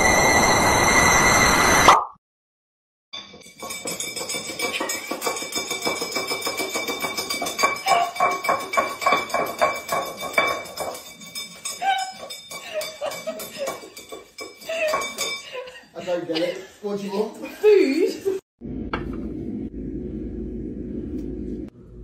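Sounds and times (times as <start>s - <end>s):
ceramic bowl clattering on floor: 3.4s - 15.8s.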